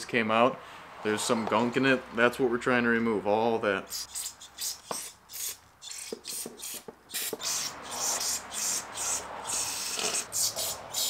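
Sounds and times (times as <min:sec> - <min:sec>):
aerosol spray hisses: 0:04.2 - 0:11.0.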